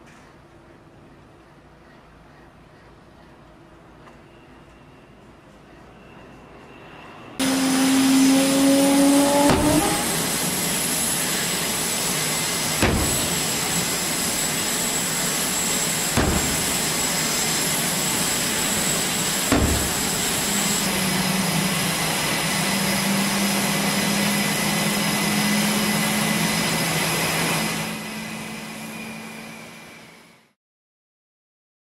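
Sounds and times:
fighter jets flying past: 6.7 - 30.2
sharp thumps: 9.4 - 10.0, 12.8 - 13.4, 16.1 - 17.0, 19.4 - 20.2.

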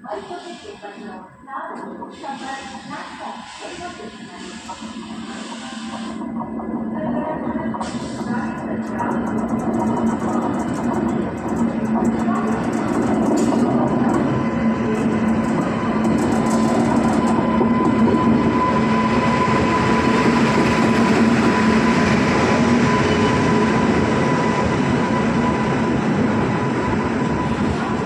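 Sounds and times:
passenger train rolling past: 1.9 - 28.0
steady whine: 8.2 - 24.4.

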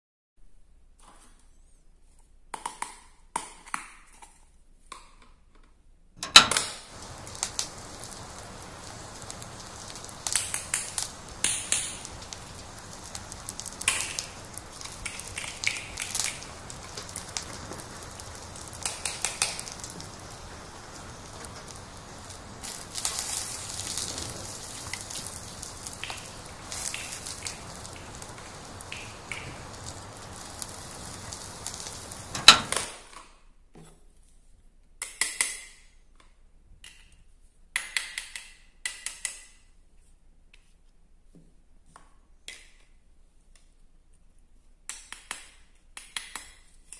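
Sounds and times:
egg frying sizzle: 6.5 - 33.0.

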